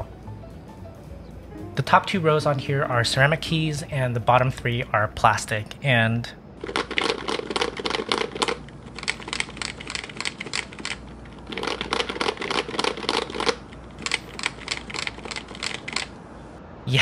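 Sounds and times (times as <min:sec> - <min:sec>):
fast keyboard typing: 0:06.6 - 0:16.1.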